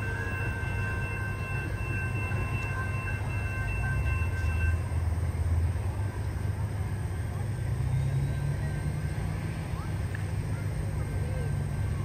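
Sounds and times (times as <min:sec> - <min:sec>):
faint thin high tones: 0:00.0 - 0:04.9
train rumbling: 0:00.0 - 0:12.0.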